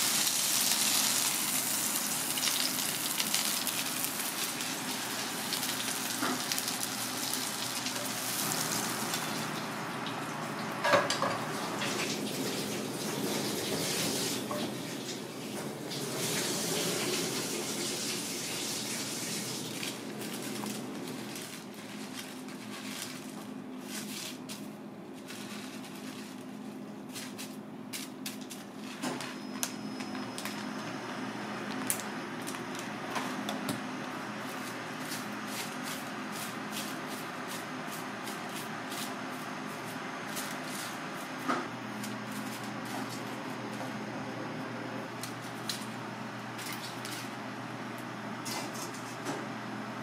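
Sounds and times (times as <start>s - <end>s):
kitchen fan hum: 0.0s - 50.0s
aluminium foil rustling: 19.0s - 29.4s, 34.4s - 41.0s, 41.9s - 43.4s.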